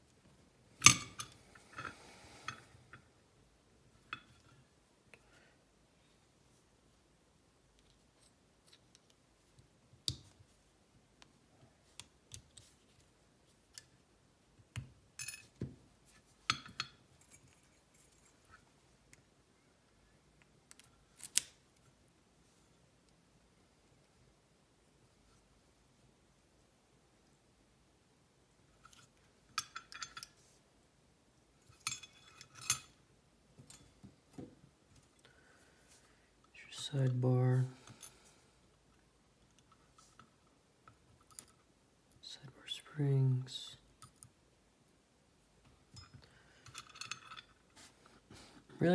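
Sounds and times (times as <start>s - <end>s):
small metallic clicks and clinks: 16.5s - 19.2s, 28.8s - 30.4s, 31.6s - 33.0s, 39.4s - 41.7s, 45.9s - 47.7s
small metal parts clinking: 31.6s - 33.0s, 45.9s - 47.7s.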